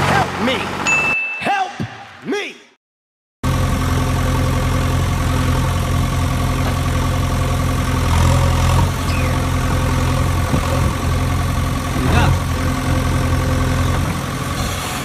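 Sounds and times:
heavy engine idling: 3.4s - 15.0s
brief squeak: 9.1s - 9.4s.

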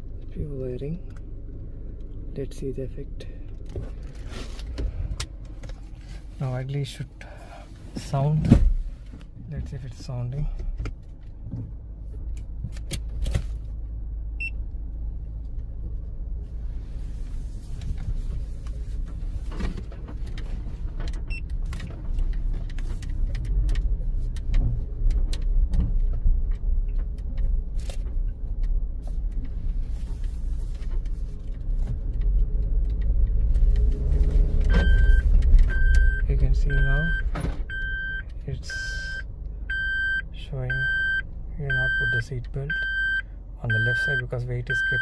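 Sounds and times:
engine and tyre rumble: 0.0s - 45.0s
seat belt reminder beeping: 34.7s - 45.0s.

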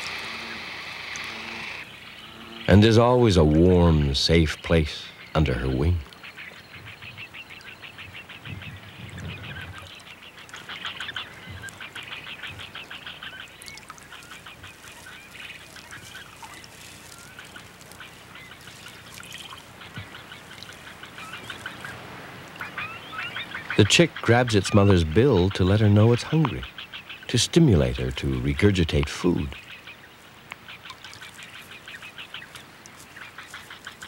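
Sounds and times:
bird chicks ticking calls: 0.0s - 34.0s.

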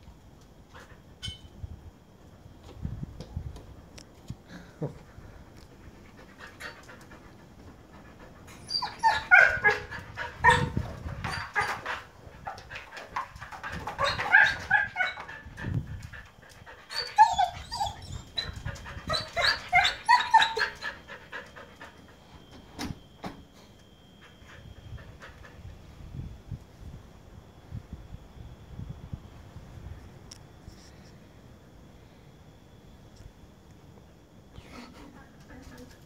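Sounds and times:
husky howling: 8.6s - 11.8s, 13.8s - 15.5s, 16.9s - 21.4s.

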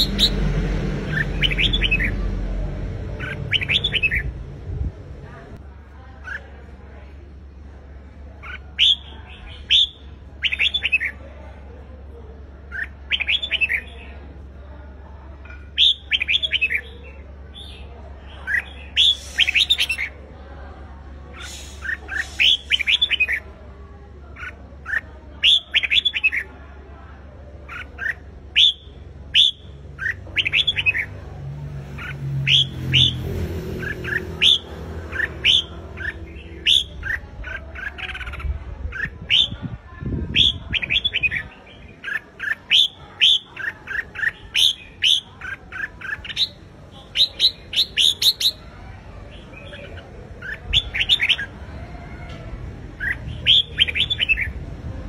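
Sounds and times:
bulbul singing whistled phrases: 0.0s - 2.3s, 3.2s - 4.4s, 8.4s - 11.2s, 12.7s - 14.0s, 15.5s - 20.3s, 21.3s - 23.5s, 24.4s - 26.6s, 27.7s - 31.2s, 32.0s - 33.2s, 33.8s - 51.6s, 52.9s - 54.6s.

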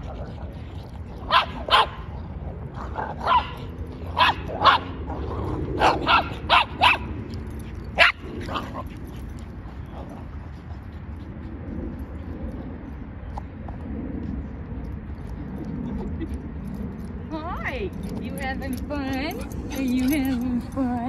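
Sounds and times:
small dog barking: 1.3s - 2.0s, 3.2s - 3.6s, 4.2s - 4.9s, 5.8s - 7.1s.

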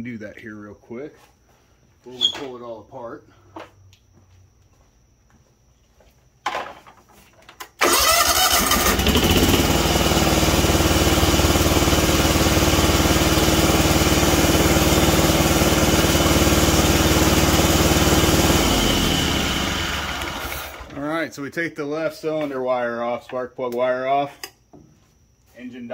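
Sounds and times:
starter motor cranking: 7.8s - 13.0s, 14.8s - 21.0s
mower engine running: 7.8s - 21.0s.

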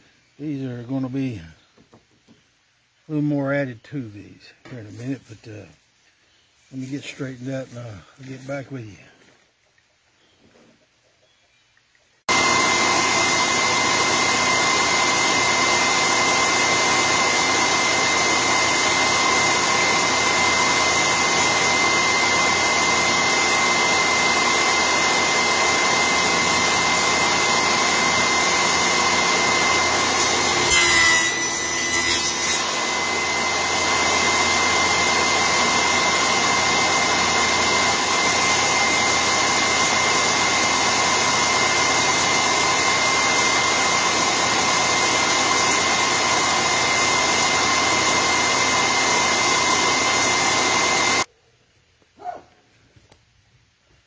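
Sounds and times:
power tool motor whining: 12.3s - 51.3s.

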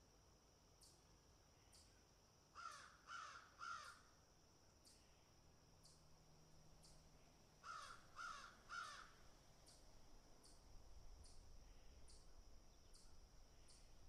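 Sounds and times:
crows cawing: 2.6s - 4.0s, 7.6s - 9.2s.

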